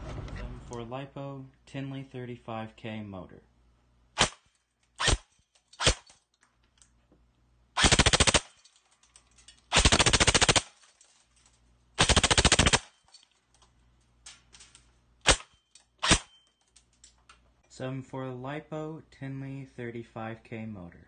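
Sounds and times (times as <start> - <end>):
airsoft gun rapid firing: 5.0 - 6.0, 7.8 - 8.5, 9.7 - 10.8, 12.0 - 12.9, 15.3 - 16.3.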